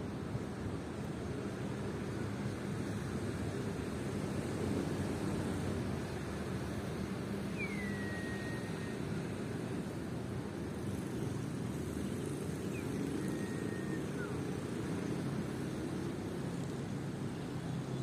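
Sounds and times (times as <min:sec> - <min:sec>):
whistled bird notes: 0:07.5 - 0:09.1.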